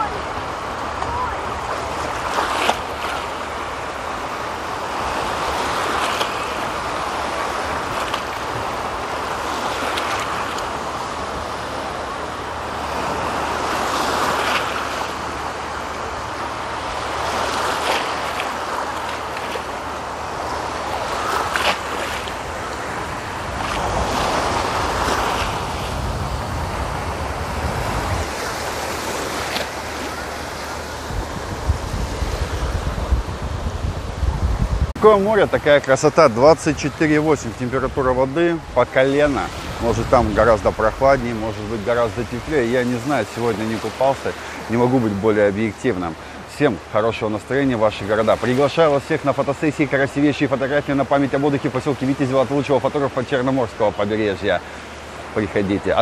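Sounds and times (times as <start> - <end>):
small waves breaking: 0.0 - 56.0
wind rumble on microphone: 20.0 - 35.4, 37.5 - 42.6.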